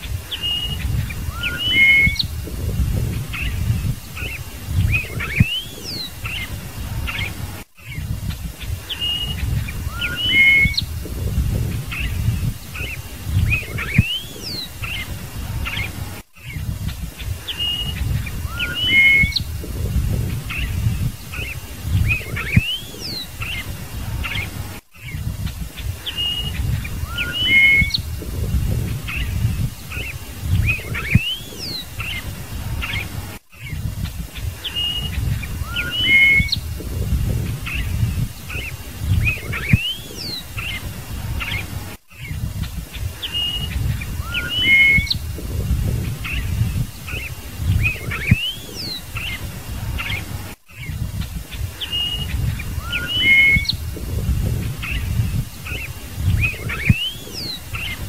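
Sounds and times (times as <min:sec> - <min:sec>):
bird singing whistled notes: 0:00.0 - 0:58.0
heavy low rumble: 0:02.2 - 0:04.1, 0:10.8 - 0:12.6, 0:19.4 - 0:21.2, 0:28.0 - 0:29.8, 0:36.6 - 0:38.4, 0:45.2 - 0:47.0, 0:53.8 - 0:55.5.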